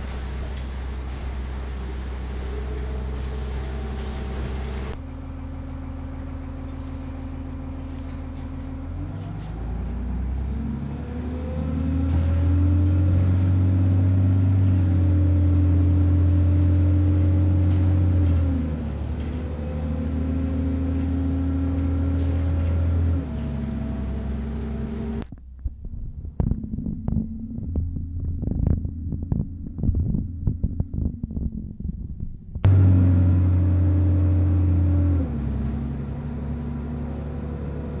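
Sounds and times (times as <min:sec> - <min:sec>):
bus engine accelerating: 0:00.0 - 0:25.3, 0:26.1 - 0:38.0
low thumps: 0:25.2 - 0:33.6.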